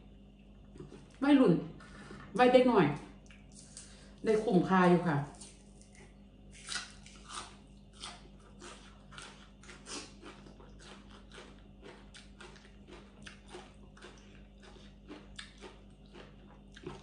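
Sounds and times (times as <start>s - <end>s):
person chewing crunchy vegetables: 5.3s - 17.0s.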